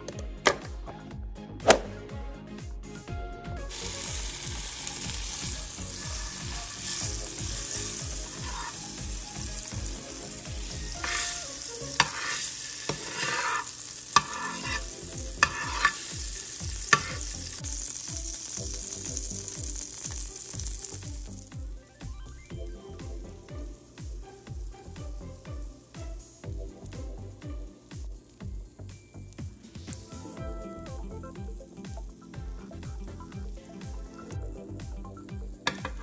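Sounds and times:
batter sizzling in a frying pan: 0:03.7 - 0:30.3, 0:35.5 - 0:36.0.

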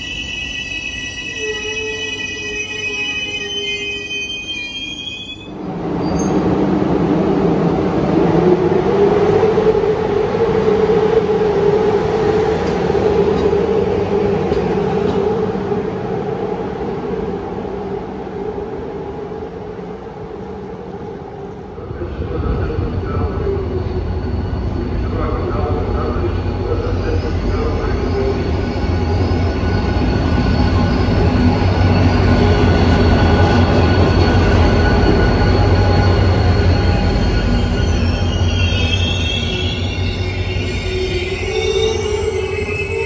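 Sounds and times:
train wheels squealing: 0:00.0 - 0:06.4, 0:22.4 - 0:43.0
deep rumble of approaching train: 0:00.0 - 0:43.0
locomotive humming and whining: 0:00.0 - 0:43.0.

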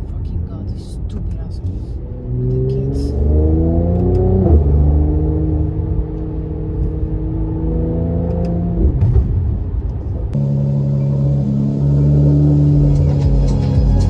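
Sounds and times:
car engine accelerating: 0:00.7 - 0:14.0.

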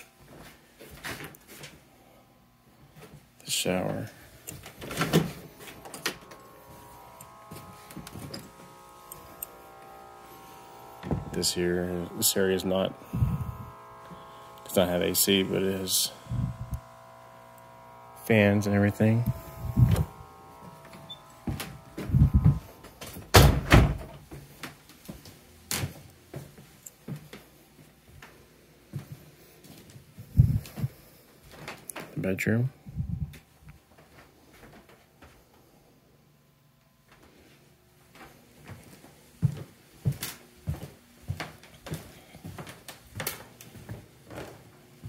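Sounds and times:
electrical hum: 0:00.0 - 0:24.8
interior door opening: 0:19.9 - 0:24.2
soft footsteps on wooden floor: 0:24.3 - 0:30.0, 0:38.1 - 0:44.7.

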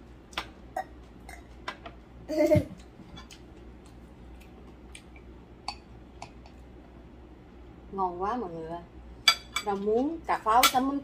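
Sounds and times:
chopsticks tapping ceramic bowls: 0:05.7 - 0:06.6.

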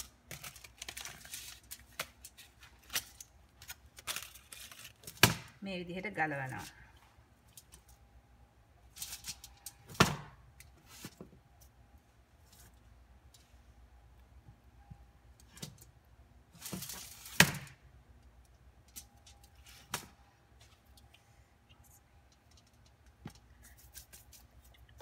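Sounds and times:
foil crinkling: 0:00.0 - 0:05.2.

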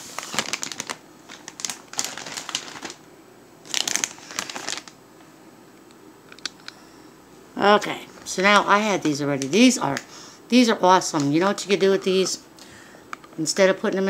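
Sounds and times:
plastic bag crinkling: 0:00.0 - 0:05.0, 0:08.1 - 0:10.3, 0:11.0 - 0:12.2.

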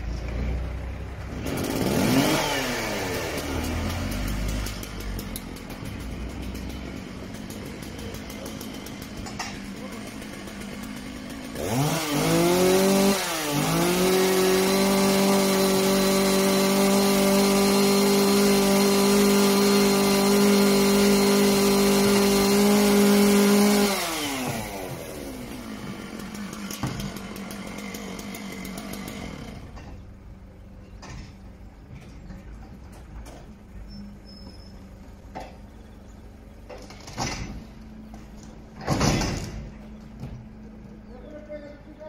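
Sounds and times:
chainsaw revving: 0:00.6 - 0:30.1.

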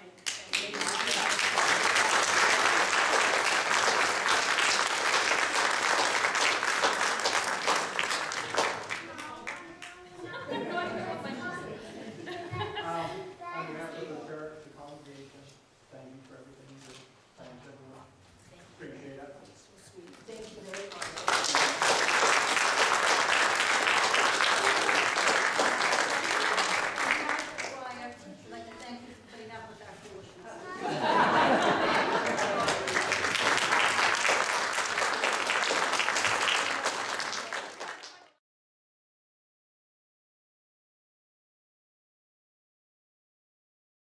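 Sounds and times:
audience applauding: 0:00.0 - 0:10.0, 0:20.7 - 0:27.8, 0:31.0 - 0:38.4.

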